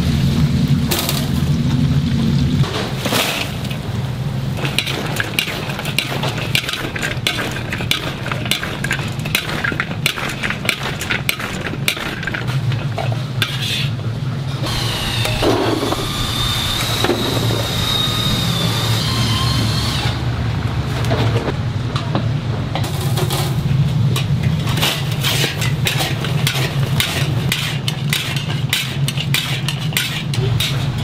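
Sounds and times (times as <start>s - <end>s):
steady hum with high whine: 0.0s - 31.0s
metal spatula scraping a wok: 13.4s - 14.0s, 24.3s - 31.0s.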